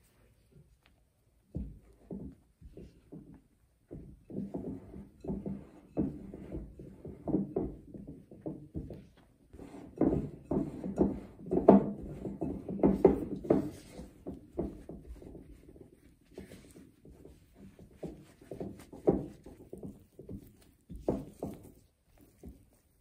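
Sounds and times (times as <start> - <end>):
spatula scraping dough in bowl: 9.5 - 23.0.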